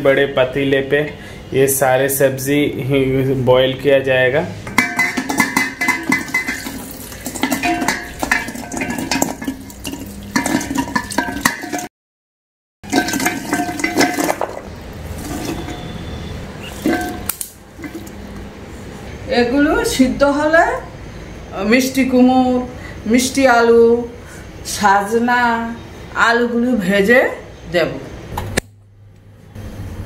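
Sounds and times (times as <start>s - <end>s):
metal bowl clinking against pot: 4.7s - 11.9s, 12.8s - 18.2s.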